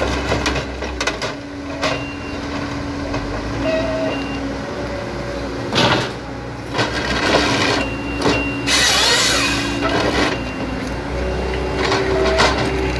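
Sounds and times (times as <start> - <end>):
excavator diesel engine and hydraulics: 0.0 - 12.9
harvester head rasping: 8.7 - 9.8.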